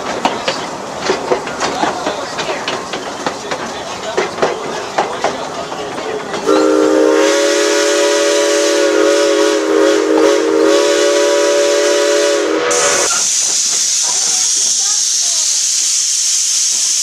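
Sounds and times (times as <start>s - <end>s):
hiss of steam: 0.0s - 17.0s
steam locomotive whistle: 6.4s - 14.0s.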